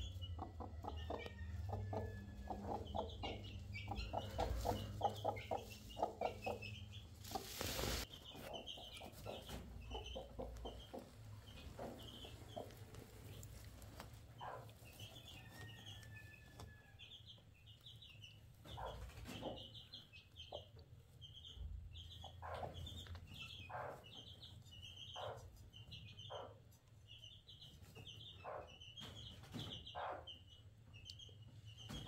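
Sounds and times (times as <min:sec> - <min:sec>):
hen softly clucking: 0:00.1 - 0:14.7.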